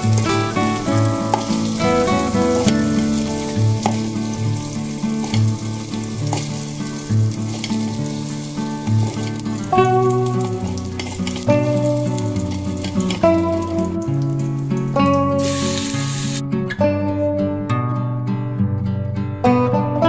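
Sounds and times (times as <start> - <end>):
spoon scooping in metal pot: 0.0 - 13.7
sausage sizzling in hot oil: 0.0 - 16.4
instrumental music with low beat: 0.0 - 17.3.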